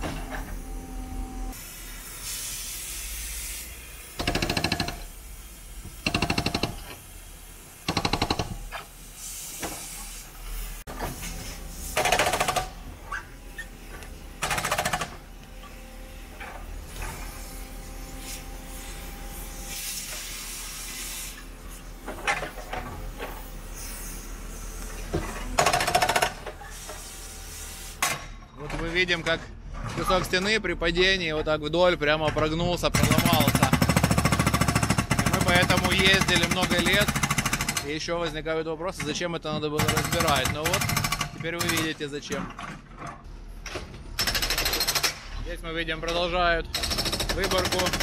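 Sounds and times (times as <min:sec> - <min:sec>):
machine noise and hiss: 0:00.0 - 0:28.4
hydraulic breaker hammering concrete: 0:04.2 - 0:05.1, 0:06.0 - 0:06.9, 0:07.9 - 0:08.7, 0:12.0 - 0:12.8, 0:14.4 - 0:15.2, 0:25.6 - 0:26.5, 0:32.9 - 0:38.0, 0:39.8 - 0:42.0, 0:46.7 - 0:48.0.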